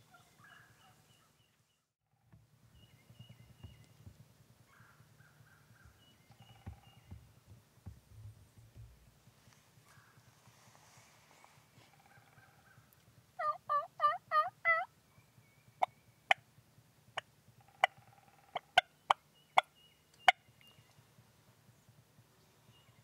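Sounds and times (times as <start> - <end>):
wild turkey calling: 0.0 - 1.5, 2.2 - 7.5, 8.4 - 10.5, 11.3 - 16.5, 17.1 - 21.0.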